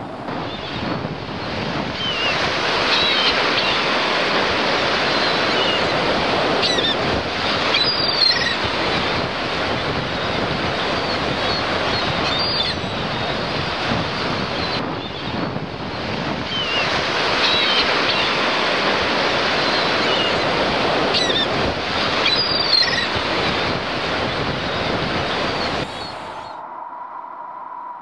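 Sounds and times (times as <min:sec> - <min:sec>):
waves washing onto shore: 0:00.0 - 0:26.6
wind blowing: 0:00.0 - 0:28.0
high bird calls: 0:07.7 - 0:08.6, 0:22.2 - 0:23.2.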